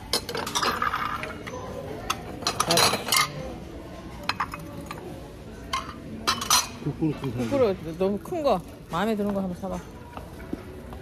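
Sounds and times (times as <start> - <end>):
ceramic plates clinking: 0.0 - 3.6, 4.2 - 7.8.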